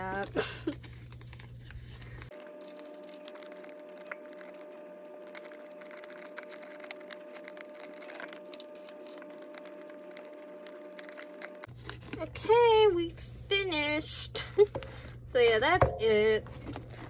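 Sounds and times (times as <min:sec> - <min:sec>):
plastic sleeves crinkling: 0:00.0 - 0:13.1
steady hum: 0:00.9 - 0:17.0.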